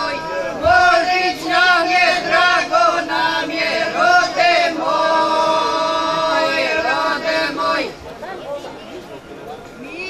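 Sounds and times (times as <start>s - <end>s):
women singing unaccompanied: 0.0s - 8.0s.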